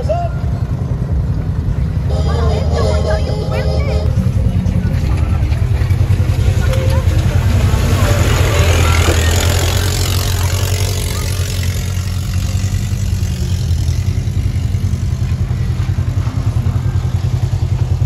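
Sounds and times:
water splashing: 5.5s - 11.7s.

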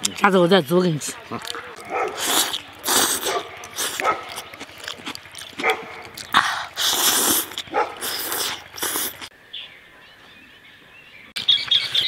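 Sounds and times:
person slurping noodles: 2.1s - 5.2s, 6.1s - 9.3s.

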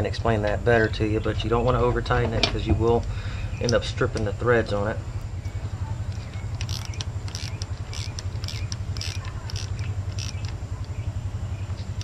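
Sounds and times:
low hum: 0.0s - 12.0s
hand ratchet clicking: 6.2s - 11.0s.

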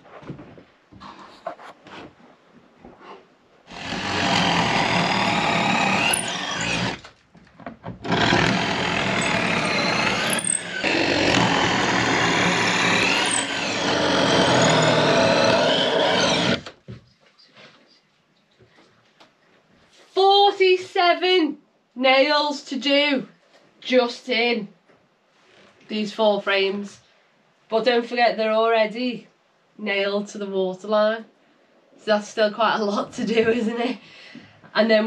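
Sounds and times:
handheld power tool running: 3.7s - 7.1s, 8.0s - 16.8s.

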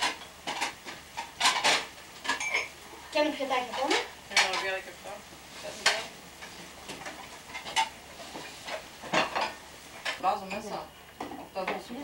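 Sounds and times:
food sizzling in frying pans: 0.0s - 12.0s.

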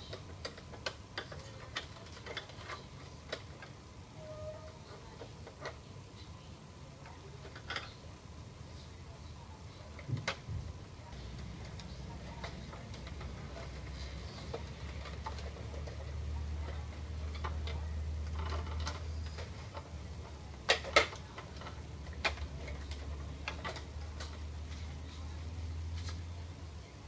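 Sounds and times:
plastic parts clicking: 0.0s - 5.8s, 7.0s - 8.0s, 11.1s - 24.9s
low steady hum: 0.0s - 27.0s.

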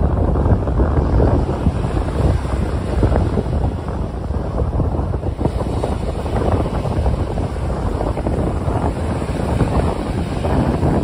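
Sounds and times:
small waves breaking on sand: 0.0s - 11.0s
wind buffeting microphone: 0.0s - 11.0s.

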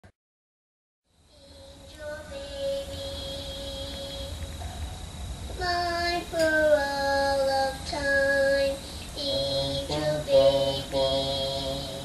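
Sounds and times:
girl singing slow song: 1.2s - 12.0s.

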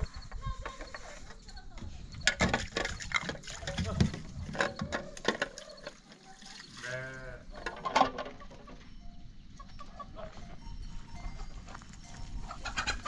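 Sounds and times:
livestock bleat: 6.8s - 7.6s.

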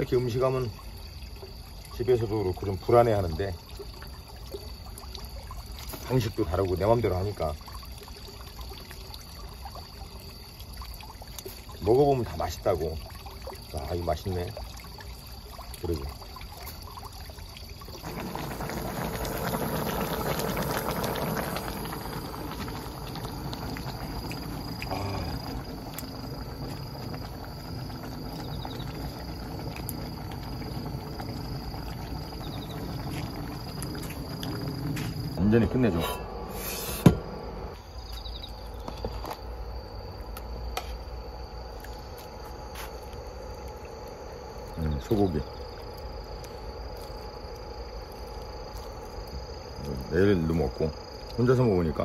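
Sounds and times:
crickets chirping: 0.0s - 52.0s
stew bubbling in a pot: 0.0s - 52.0s
sharp knock: 37.0s - 37.3s.

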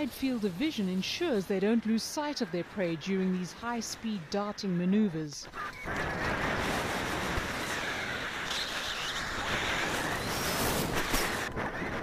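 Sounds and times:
wind rushing over microphone: 5.8s - 12.0s.

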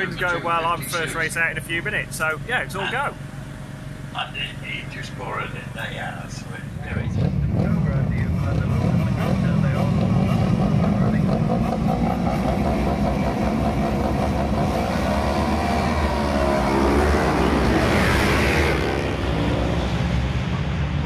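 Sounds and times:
motorcycles revving and accelerating: 6.8s - 21.0s.

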